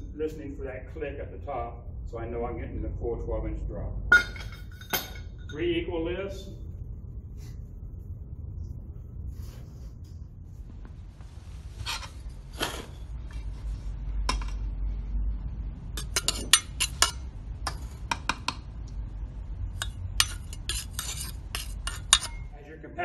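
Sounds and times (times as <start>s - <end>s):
metal scoop scraping metal pan: 11.8s - 13.5s, 16.0s - 18.0s, 19.8s - 22.5s.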